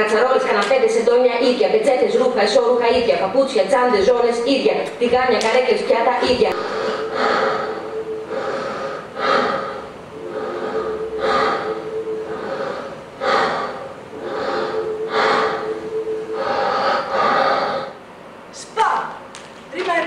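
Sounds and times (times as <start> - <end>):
steady hum: 0.0 - 20.0
people gasping breaths: 6.5 - 18.0.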